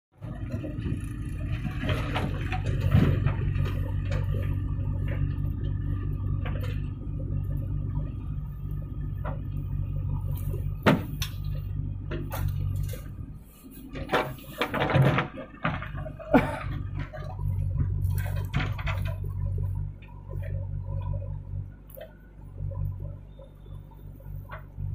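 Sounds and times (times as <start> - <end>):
diesel engine running under load: 0.1 - 24.9.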